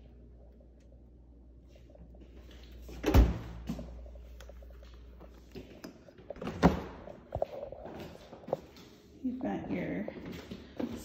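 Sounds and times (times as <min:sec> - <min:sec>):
refrigerator door thud: 0:03.0 - 0:03.7.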